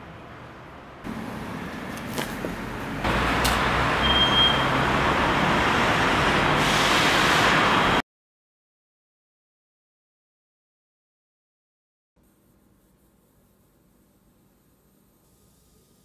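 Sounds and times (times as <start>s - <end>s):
passing vehicles rushing: 0.0s - 8.0s
brief high squeal: 4.0s - 4.8s.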